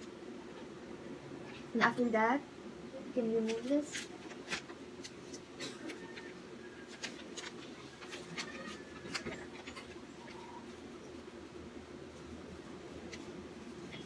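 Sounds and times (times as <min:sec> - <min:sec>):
faint steady hum: 0:00.0 - 0:14.0
paper and towel rustling: 0:03.2 - 0:10.8.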